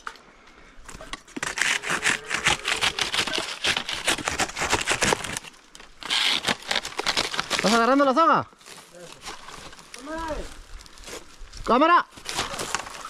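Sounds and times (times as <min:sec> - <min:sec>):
hand saw cutting stalk: 0:01.4 - 0:07.9.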